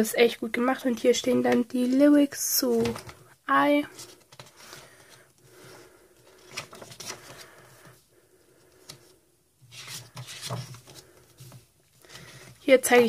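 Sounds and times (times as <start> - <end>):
pages turning: 3.9 - 5.2, 6.2 - 7.9, 8.8 - 12.6.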